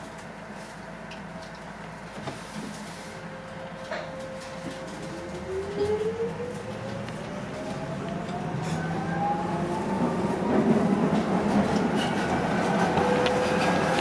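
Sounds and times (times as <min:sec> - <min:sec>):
train running gear rumble and rattle: 0:00.0 - 0:14.0.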